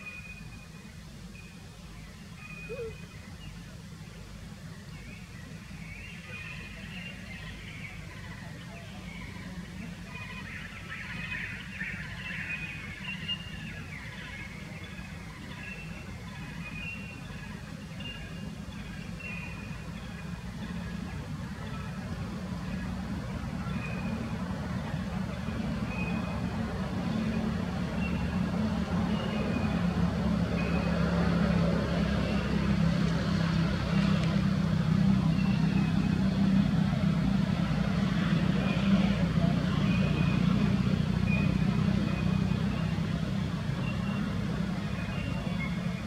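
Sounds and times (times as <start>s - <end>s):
small birds chirping: 0.0s - 36.3s
distant traffic hum: 0.0s - 46.0s
faint high chirps: 2.4s - 3.4s.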